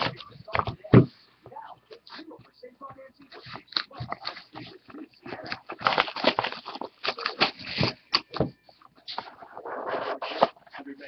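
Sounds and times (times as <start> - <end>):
cardboard scraping and sliding: 9.0 - 11.0.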